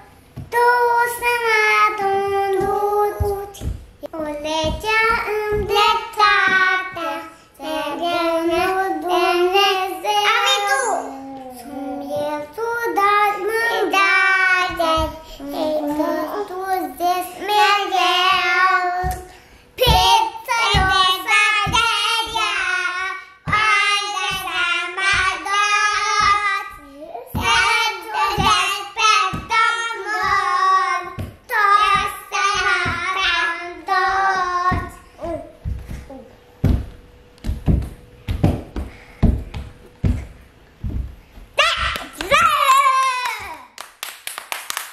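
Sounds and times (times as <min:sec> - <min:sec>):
children singing unaccompanied: 0:00.5 - 0:35.5.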